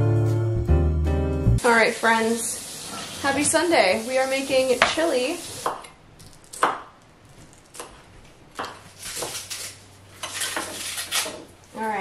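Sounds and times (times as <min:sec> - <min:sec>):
knife chopping on wooden board: 0:06.5 - 0:06.9, 0:07.7 - 0:09.6, 0:10.2 - 0:11.5.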